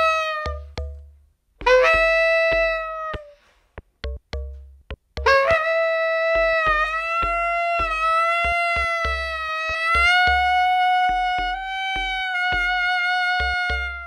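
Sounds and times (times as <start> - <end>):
bass clarinet long notes: 0.0 - 1.0, 1.6 - 3.4, 5.2 - 14.0
deep bass pulses: 0.0 - 14.0
sharp percussion clicks: 0.4 - 5.3.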